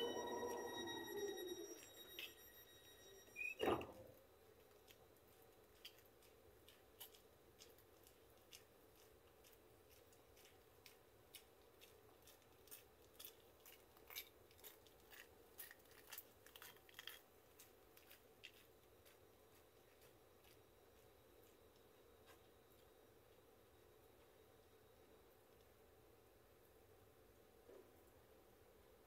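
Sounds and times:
faint small clicks and crackles: 4.5s - 19.2s.

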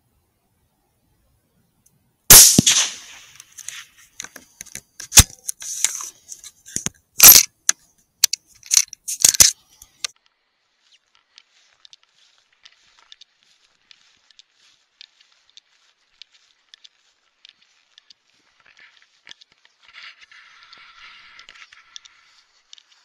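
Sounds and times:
rifle shot: 2.3s - 3.5s
rifle bolt clacking: 6.8s - 7.5s.

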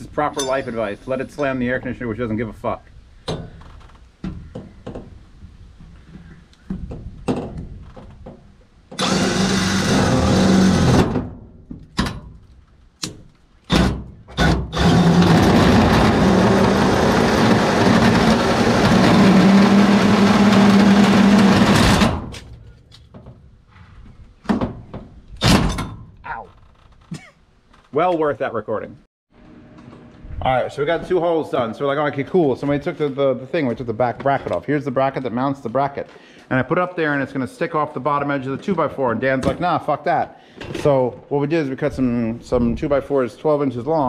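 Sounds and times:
drill hole saw cutting metal: 9.0s - 11.2s, 13.7s - 22.1s.

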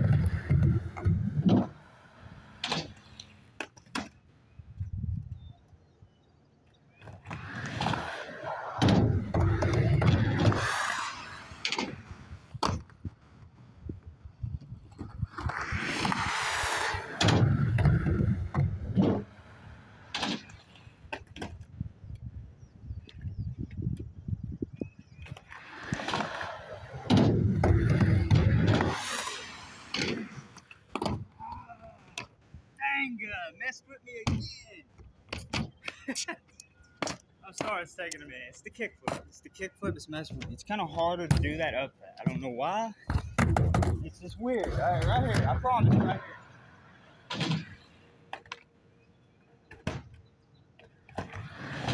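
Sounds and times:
skateboard wheels rolling on metal: 0.0s - 4.0s, 7.1s - 13.6s, 25.2s - 31.4s, 50.8s - 51.9s.

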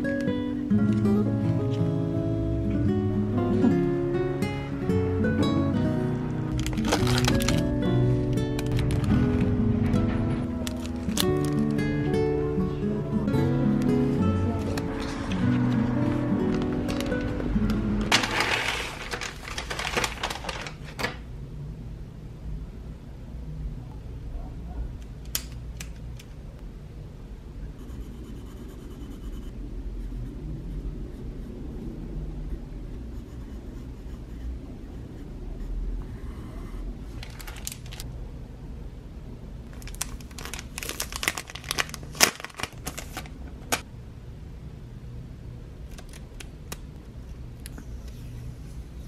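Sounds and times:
low steady hum: 0.0s - 49.0s
pencil scratching on paper: 27.8s - 30.4s, 33.1s - 36.8s.

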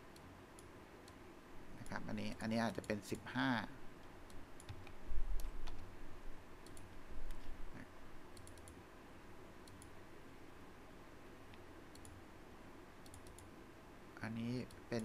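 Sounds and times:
keyboard and mouse clicks: 4.3s - 5.9s, 6.6s - 7.5s, 8.3s - 8.8s, 9.6s - 10.0s, 11.5s - 12.2s, 13.0s - 13.5s.

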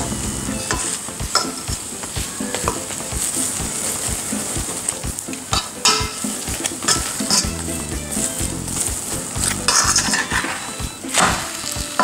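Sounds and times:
bread sizzling in pan: 0.0s - 12.0s
metal spoon tapping and scraping: 0.6s - 3.6s, 4.4s - 7.6s.

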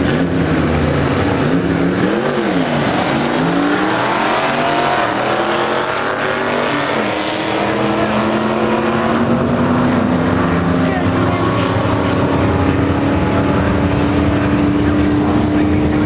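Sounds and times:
cars accelerating hard: 0.0s - 16.0s
hot rod engines revving: 0.0s - 16.0s.

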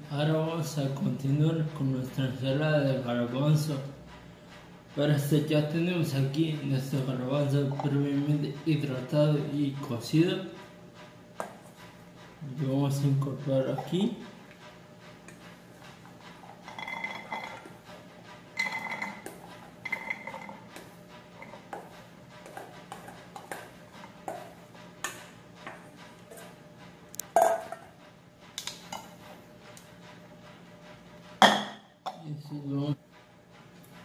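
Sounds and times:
spatula scraping metal bowl: 5.3s - 10.5s, 11.4s - 28.0s.

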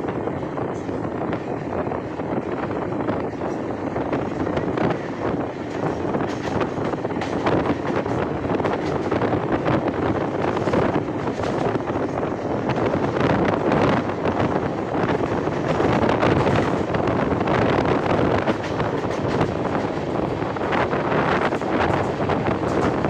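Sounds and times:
train running on rails: 0.0s - 23.0s
wind rushing over microphone: 0.0s - 23.0s.

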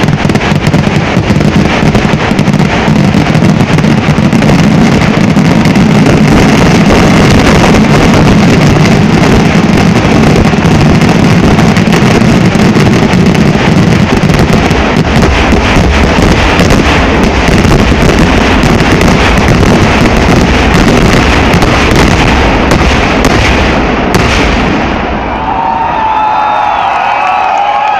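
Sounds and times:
firecrackers exploding: 0.0s - 27.9s
crowd shouting: 25.0s - 27.9s.

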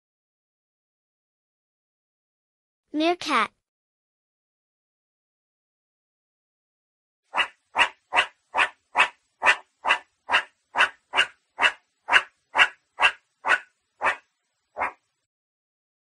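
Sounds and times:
meerkat barking calls: 7.3s - 15.1s.

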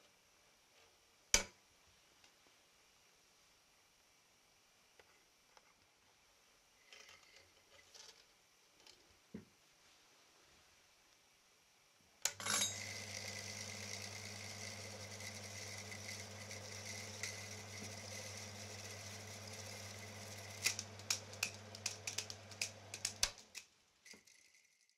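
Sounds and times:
projector motor humming: 12.3s - 23.6s.

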